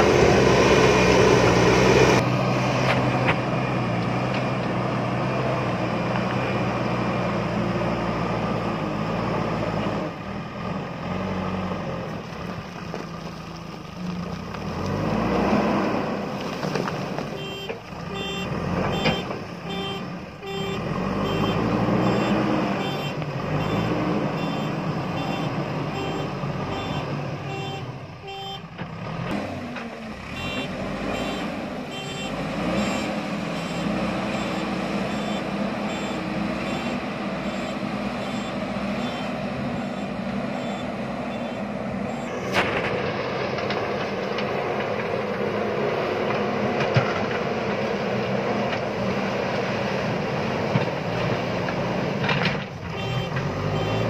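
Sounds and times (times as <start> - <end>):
diesel engine revving under load: 0.0 - 54.0
reversing alarm beeps: 17.4 - 28.7, 30.4 - 42.4, 53.0 - 54.0.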